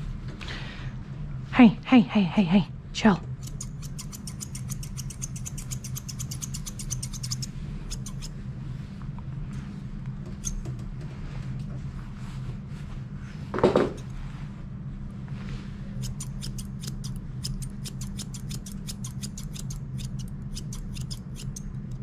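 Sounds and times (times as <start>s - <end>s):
steady low hum: 0.0s - 22.0s
grooming shears snipping: 3.3s - 8.3s, 16.0s - 21.7s.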